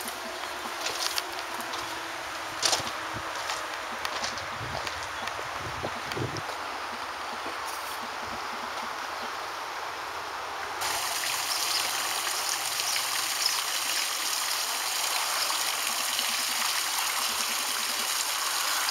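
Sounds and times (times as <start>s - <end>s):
faint outdoor background noise: 0.0s - 18.9s
fountain water splashing: 10.8s - 18.9s.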